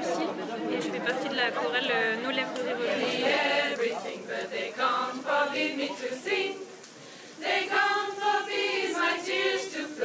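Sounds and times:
choir singing a cappella: 2.6s - 10.0s.

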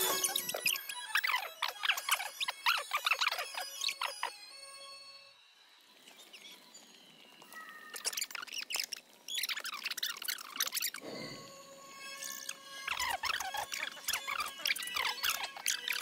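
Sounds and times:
rapid high-pitched chirping calls: 0.0s - 4.4s, 7.5s - 11.0s, 12.0s - 16.0s.

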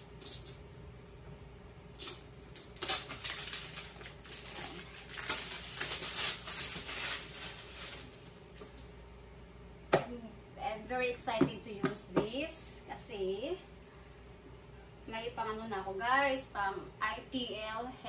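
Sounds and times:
packaging crinkling: 2.0s - 8.9s.

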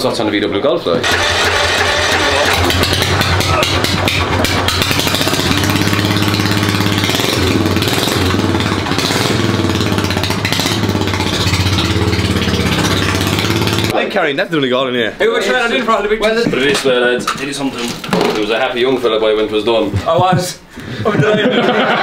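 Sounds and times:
lawnmower engine running loud: 1.0s - 13.9s.

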